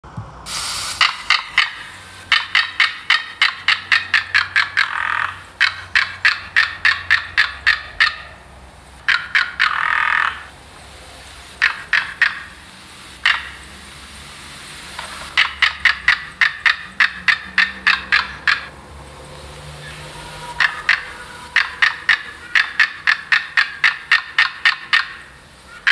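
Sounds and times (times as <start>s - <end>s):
rapid clicking chatter call: 0.9s - 8.4s, 9.0s - 10.5s, 11.5s - 12.6s, 13.2s - 13.7s, 14.9s - 18.8s, 19.8s - 25.9s
long drawn-out animal calls: 1.0s - 10.6s, 11.5s - 12.6s, 13.2s - 13.7s, 15.3s - 25.9s.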